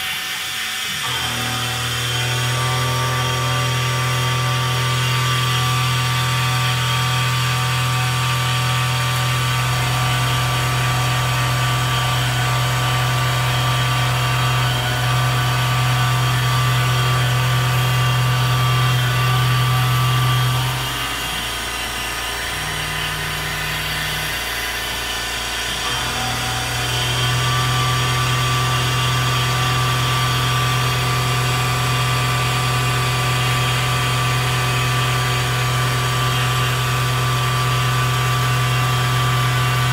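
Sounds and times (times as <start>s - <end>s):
high machine whine: 0.0s - 39.9s
milling machine hum: 0.0s - 39.9s.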